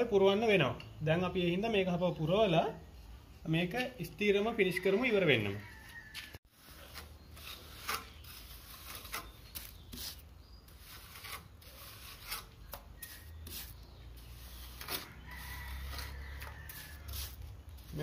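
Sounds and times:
trowel scraping mortar: 0:06.2 - 0:18.0.

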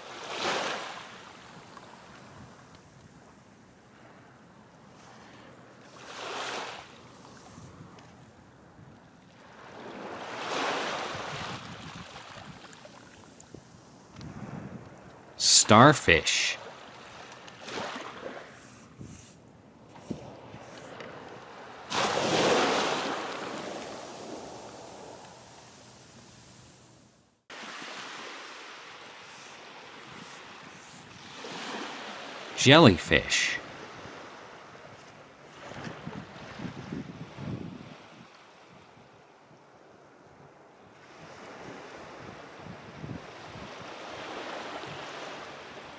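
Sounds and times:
ocean waves washing: 0:00.0 - 0:02.6, 0:09.4 - 0:14.1, 0:15.4 - 0:19.0, 0:19.8 - 0:34.7
ocean surf rushing: 0:15.4 - 0:16.6, 0:21.9 - 0:26.5, 0:27.5 - 0:33.6.

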